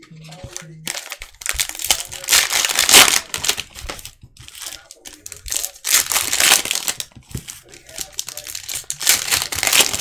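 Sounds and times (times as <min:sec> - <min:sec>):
cellophane wrapper crinkling: 0:00.5 - 0:10.0.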